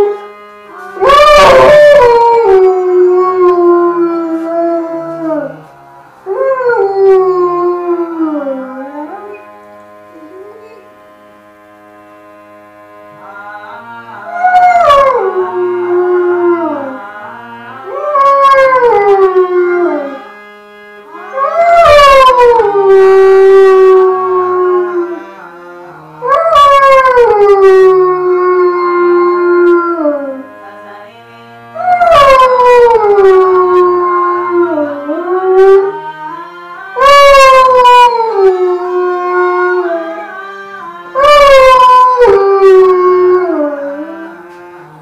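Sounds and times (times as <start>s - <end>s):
quiet instrumental music: 0.0s - 45.0s
dog howling: 1.0s - 5.6s, 6.3s - 9.4s, 14.3s - 17.0s, 17.9s - 20.2s, 21.3s - 25.2s, 26.2s - 30.4s, 31.8s - 36.0s, 37.0s - 40.3s, 41.2s - 44.2s.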